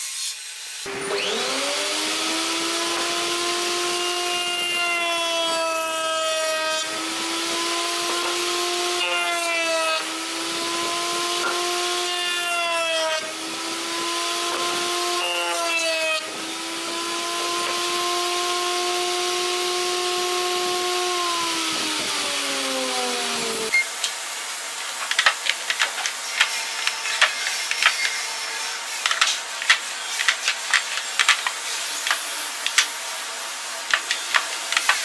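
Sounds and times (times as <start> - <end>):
router cutting wood: 0.0 - 23.8, 25.2 - 35.0
electric router motor whine: 0.9 - 23.7.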